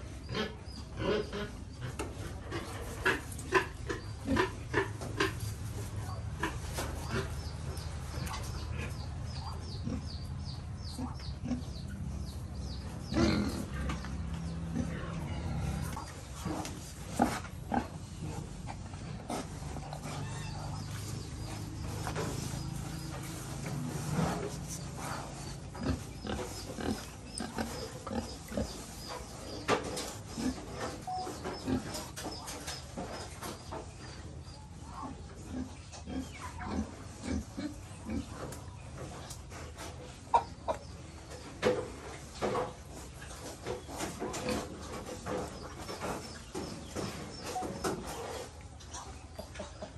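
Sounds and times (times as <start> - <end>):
pigs grunting: 0.2 - 32.2, 35.0 - 38.6.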